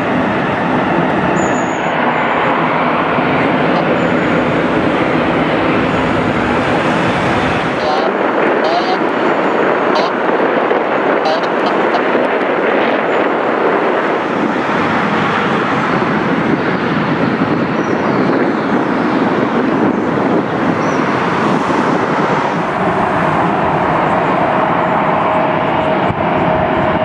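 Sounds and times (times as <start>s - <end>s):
steady whine: 0.0s - 17.2s, 20.2s - 27.0s
jet engines roaring: 0.0s - 27.0s.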